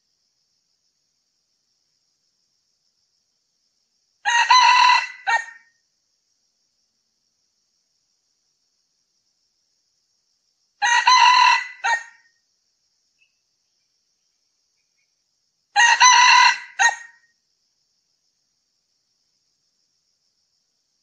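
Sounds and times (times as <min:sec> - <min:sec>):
rooster crowing: 0:04.2 - 0:05.6, 0:10.8 - 0:12.3, 0:15.8 - 0:17.2.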